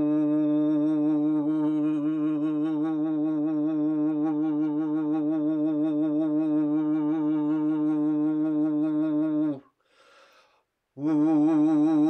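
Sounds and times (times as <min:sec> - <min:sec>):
man holding low vocal tone: 0:00.0 - 0:09.7, 0:11.0 - 0:12.0
quick breath in: 0:09.8 - 0:10.7.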